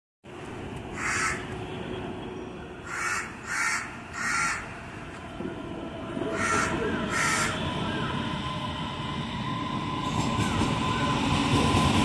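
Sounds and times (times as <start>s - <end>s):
bird cawing harshly: 0.9s - 1.5s, 2.8s - 4.7s, 6.3s - 7.6s.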